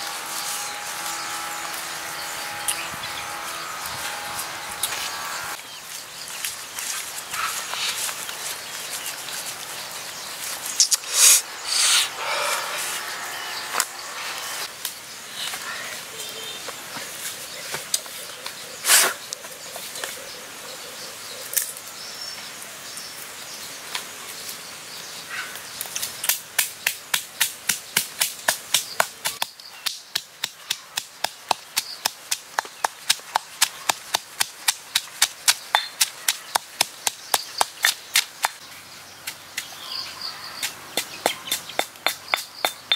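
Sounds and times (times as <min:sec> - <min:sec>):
rustling of herbs: 0:05.7 - 0:14.7
pestle pounding in stone mortar: 0:41.0 - 0:42.9.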